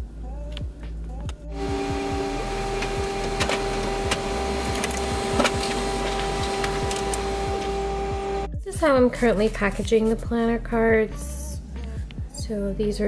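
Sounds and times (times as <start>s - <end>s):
printer humming and whining: 1.5s - 8.5s
printer clicks and ticks: 1.6s - 7.9s.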